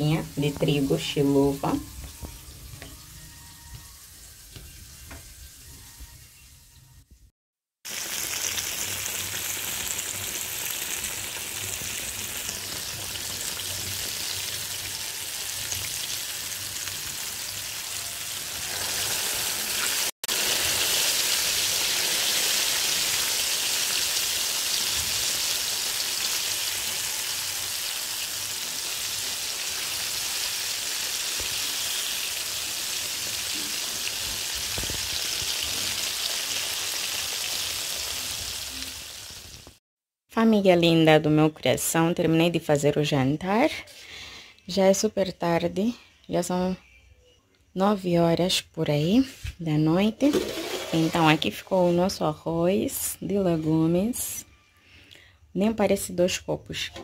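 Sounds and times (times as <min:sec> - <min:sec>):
fish frying in oil sizzling: 0:07.8 - 0:39.8.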